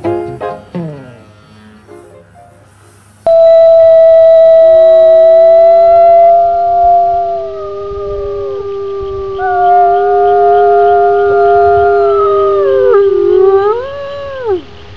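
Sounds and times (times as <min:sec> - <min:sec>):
wolves howling: 0:03.3 - 0:14.9.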